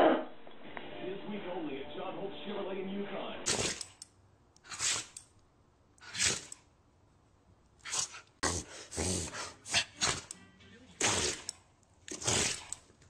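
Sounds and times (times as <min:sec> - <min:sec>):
dog sneezing: 0:03.5 - 0:04.0, 0:04.7 - 0:05.2, 0:06.0 - 0:06.5, 0:07.8 - 0:10.3, 0:11.0 - 0:11.5.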